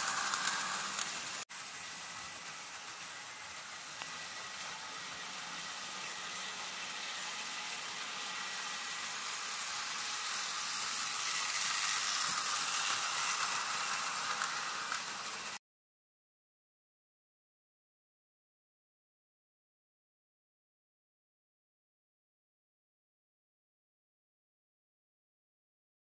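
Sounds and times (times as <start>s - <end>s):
model train whirring on track: 0.0s - 15.6s.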